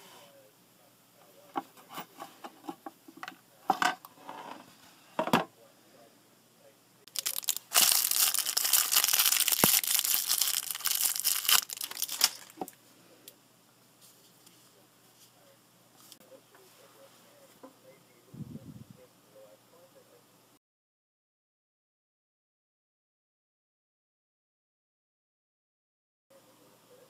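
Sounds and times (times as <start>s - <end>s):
plastic bag crinkling and tearing: 7.1s - 12.7s.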